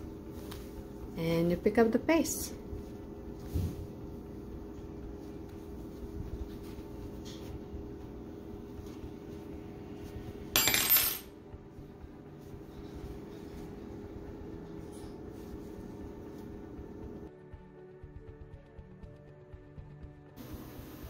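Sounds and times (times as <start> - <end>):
low hum: 0.0 - 17.3
yarn rustling: 2.8 - 7.6
metal hook clattering on table: 10.6 - 11.3.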